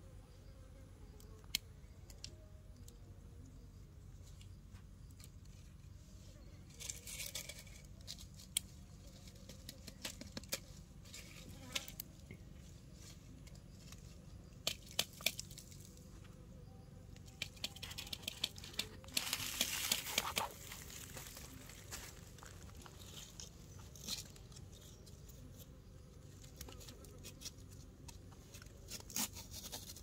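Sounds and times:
dry leaves crackling and rustling: 19.0s - 24.3s.

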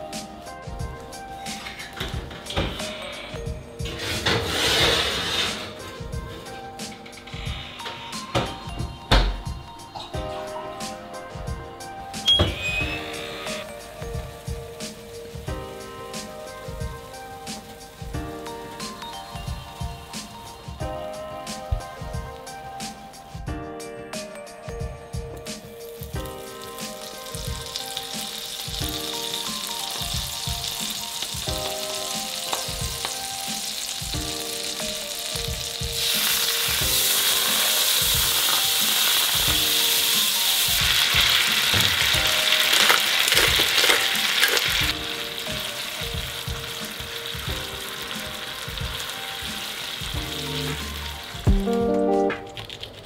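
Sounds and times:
background music with steady beat: 0.0s - 53.0s
butter sizzling in a frying pan: 25.9s - 51.4s.

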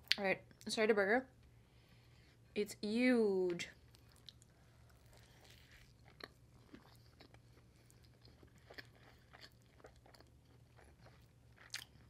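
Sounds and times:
low steady hum: 0.0s - 12.0s
close-up chewing: 3.8s - 12.0s.

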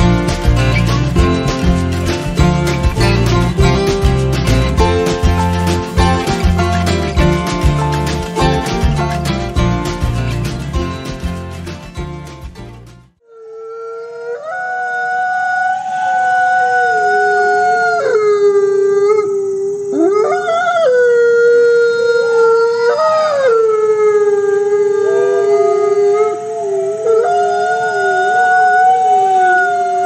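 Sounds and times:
wolves howling: 14.0s - 30.0s.

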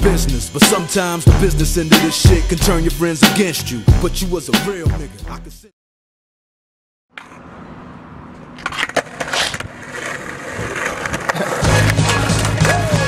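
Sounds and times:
skateboard rolling on pavement: 7.2s - 13.0s
skateboard clacks: 8.6s - 13.0s.

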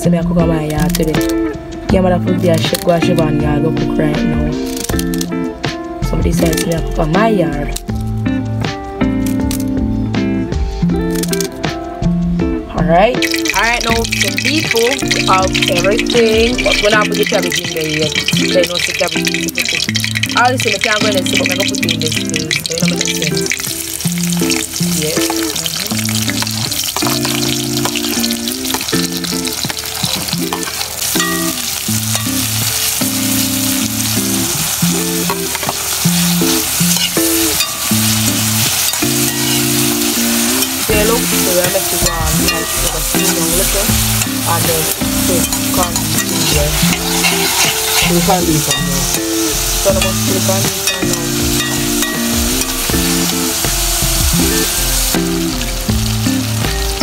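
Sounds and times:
vegetables sizzling in hot oil: 13.0s - 57.0s
stirring in a pot: 13.2s - 33.0s, 40.6s - 53.4s.

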